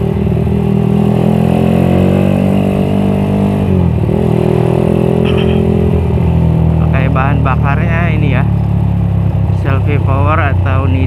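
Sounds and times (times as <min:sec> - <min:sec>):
motorcycle engine running: 0:05.0 - 0:06.9.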